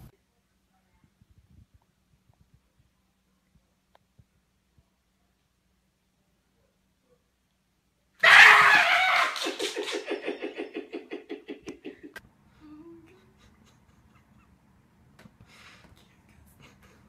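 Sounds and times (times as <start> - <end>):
person shrieking: 8.2 - 9.8
person laughing: 8.3 - 12.2, 13.0 - 14.6, 16.5 - 17.0.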